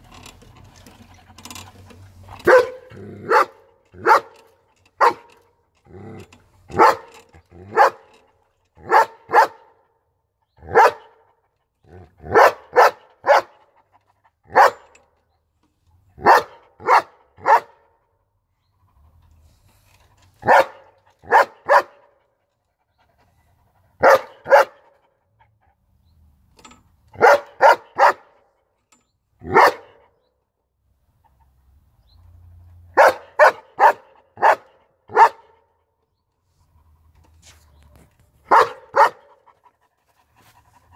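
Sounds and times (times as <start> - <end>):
dog barking: 2.5 - 4.4, 5.0 - 5.3, 6.7 - 7.1, 7.7 - 8.0, 8.8 - 9.7, 10.6 - 11.2, 12.2 - 13.6, 14.5 - 14.9, 16.2 - 17.9, 20.4 - 22.1, 24.0 - 25.0, 27.2 - 28.3, 29.4 - 30.0, 33.0 - 35.6, 38.5 - 39.3.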